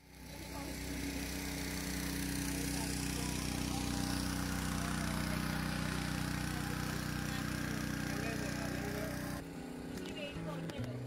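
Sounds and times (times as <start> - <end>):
motorboat engine running: 0.0 - 11.0.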